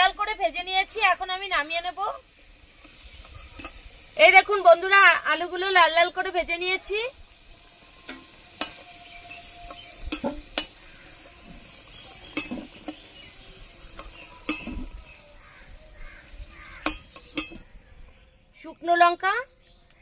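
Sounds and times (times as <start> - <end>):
metal utensil scraping a pan: 2.6 - 4.2, 7.6 - 15.8, 16.6 - 17.8.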